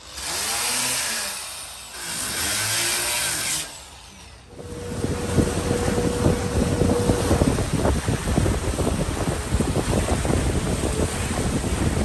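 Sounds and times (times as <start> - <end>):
power tool on wood: 0.0 - 7.6
motorboat engine humming: 4.5 - 12.0
wind rumbling on microphone: 4.5 - 12.0.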